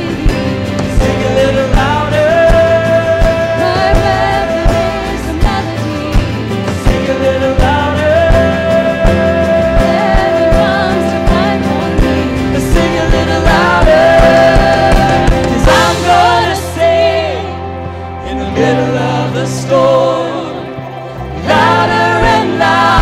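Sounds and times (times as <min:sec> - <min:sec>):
steady drum beat: 0:00.0 - 0:17.1
bass: 0:00.0 - 0:23.0
keyboard chords: 0:00.0 - 0:23.0
voices singing: 0:00.0 - 0:23.0.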